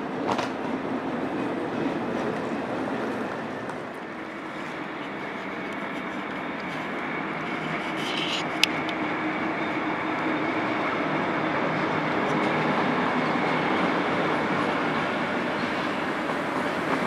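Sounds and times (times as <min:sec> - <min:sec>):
train wheels rumbling on rails: 0:00.0 - 0:17.0.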